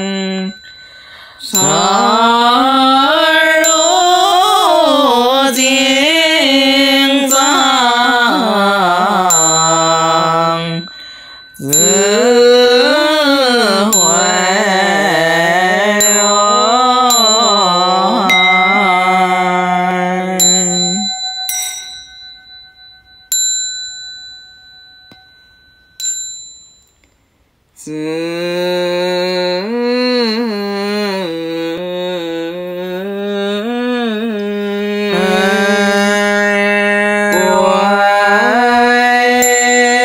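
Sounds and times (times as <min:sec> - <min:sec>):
small hand bell ringing: 0:00.0 - 0:06.0, 0:09.2 - 0:15.3, 0:15.9 - 0:19.7, 0:20.3 - 0:27.1, 0:39.0 - 0:40.0
chanting in long melodic notes: 0:00.0 - 0:22.5, 0:27.9 - 0:40.0.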